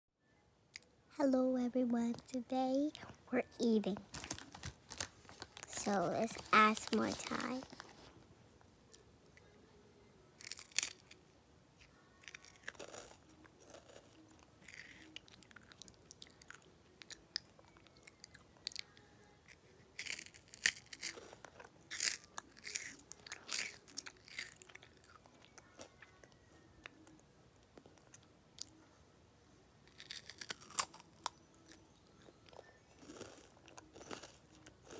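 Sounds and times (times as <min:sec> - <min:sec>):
person chewing crunchy snacks: 0:10.4 - 0:11.2, 0:12.1 - 0:26.3, 0:29.8 - 0:34.9.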